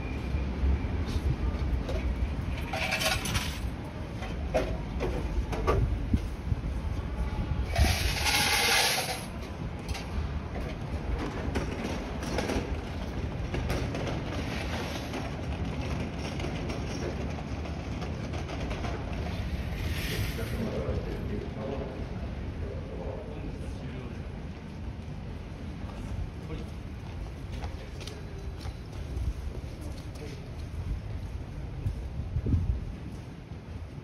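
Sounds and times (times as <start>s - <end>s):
loud hiss: 19.6s - 20.7s.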